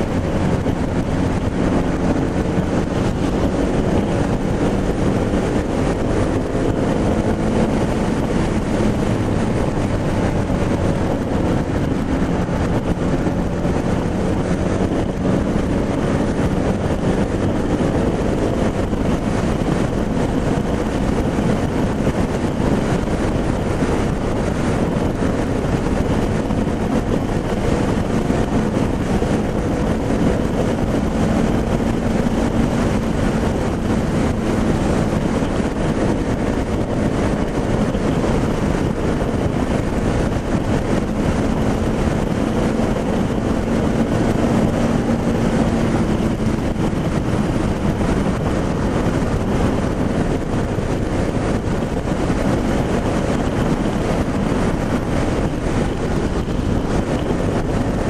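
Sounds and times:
motorcycle engine cruising: 0.0s - 58.0s
wind noise on microphone: 0.0s - 58.0s.

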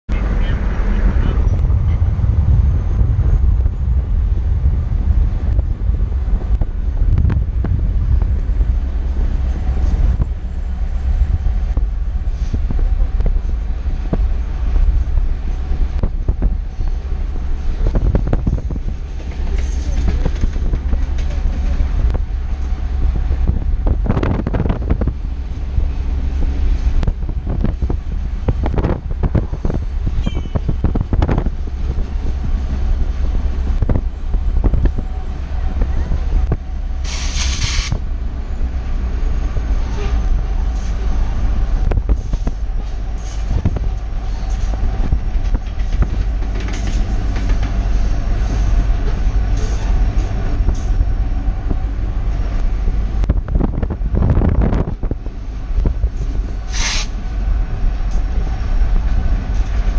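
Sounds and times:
freight train rumbling past: 0.1s - 59.9s
train cars clanking: 6.4s - 59.9s
train wheel clatter: 12.4s - 35.1s, 35.7s - 38.0s, 39.4s - 59.9s.

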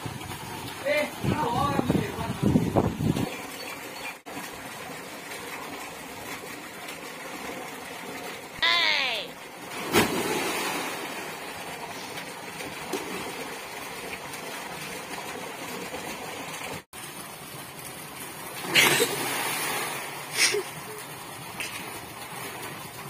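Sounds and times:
water pouring from pipes: 0.0s - 23.0s
loud sudden splashes: 9.7s - 11.3s, 18.6s - 20.6s.

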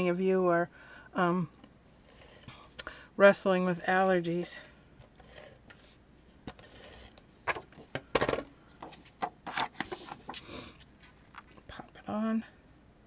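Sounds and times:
paper sliding and rustling: 8.9s - 11.5s.

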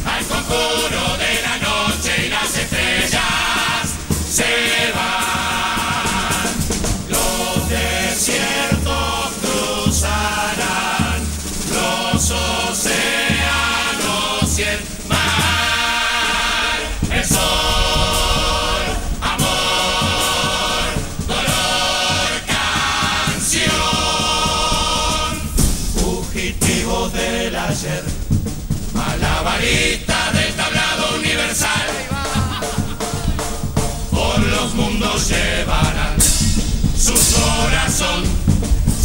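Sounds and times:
low drum beat: 0.0s - 39.0s
male chorus singing in harmony: 0.0s - 39.0s.

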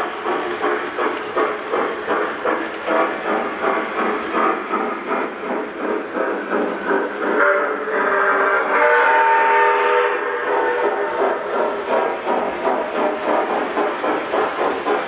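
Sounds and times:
model steam train chuffing: 0.0s - 15.0s
train whistle: 7.4s - 11.5s.

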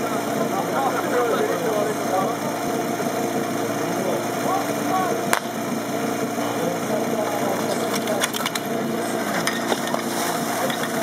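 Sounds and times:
pump engine idling: 0.0s - 11.0s
sharp metallic clacks: 7.6s - 8.7s.

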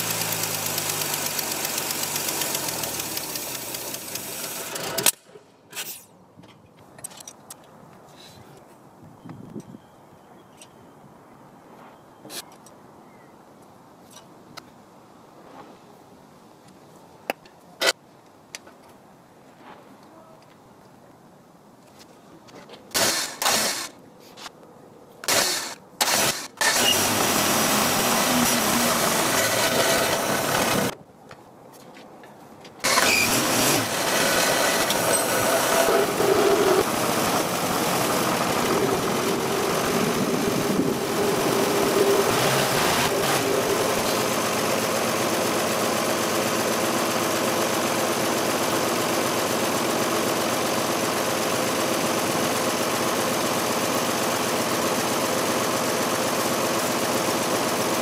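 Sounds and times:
car engine cranking and idling: 0.0s - 5.2s, 25.3s - 31.0s, 32.8s - 58.0s.

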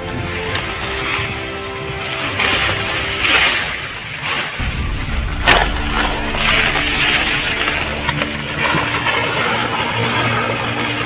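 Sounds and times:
low rumble: 4.6s - 9.6s.

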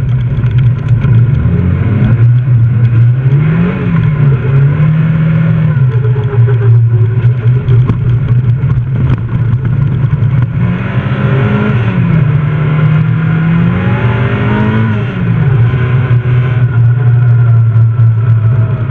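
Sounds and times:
rally car engine revving: 0.0s - 18.9s.

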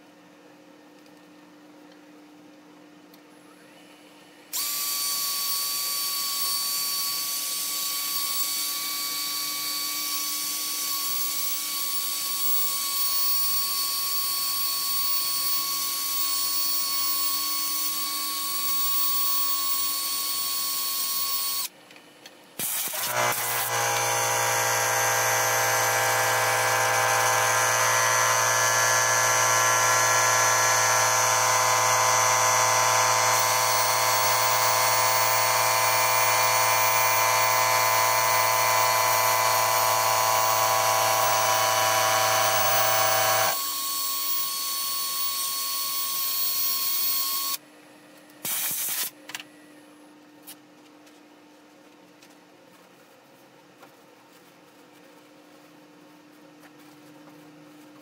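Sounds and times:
cordless drill sanding whine: 4.6s - 21.7s, 22.6s - 47.6s.

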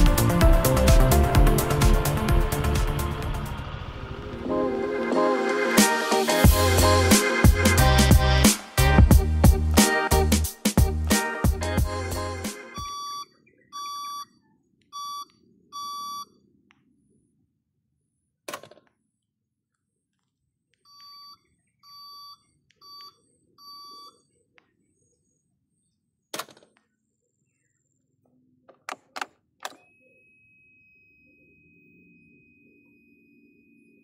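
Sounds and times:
short electronic beeps: 12.8s - 14.4s, 15.0s - 16.3s
steady high tone: 29.9s - 34.0s.

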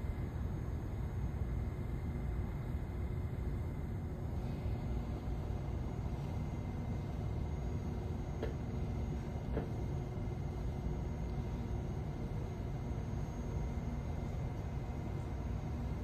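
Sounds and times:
train equipment humming: 0.0s - 16.0s.

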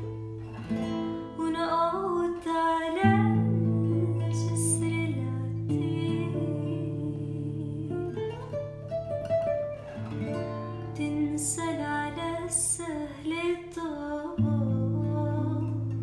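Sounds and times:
acoustic guitar chords: 0.0s - 16.0s
woman singing: 1.2s - 8.9s, 10.9s - 16.0s.

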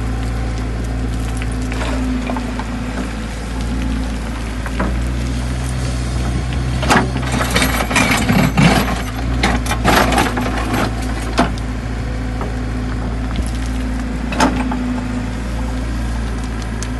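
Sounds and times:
diesel engine running: 0.0s - 16.9s
bucket scraping through gravelly soil: 0.9s - 11.4s.

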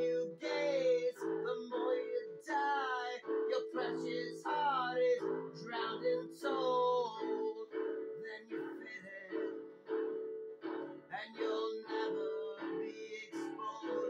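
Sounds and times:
electronic keyboard chords: 0.0s - 11.1s
person singing: 0.0s - 14.0s.

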